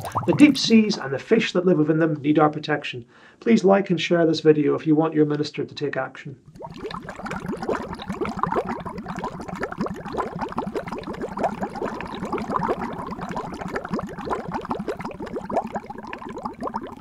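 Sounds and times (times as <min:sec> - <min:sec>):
underwater bubbling: 0:00.0 - 0:01.0, 0:06.4 - 0:17.0.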